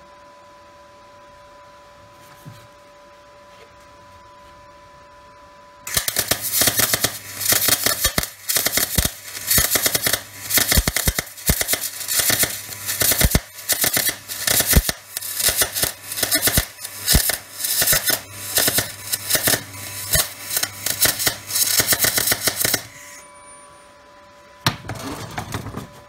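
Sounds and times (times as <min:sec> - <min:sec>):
welder arc crackling: 0:05.9 - 0:23.3.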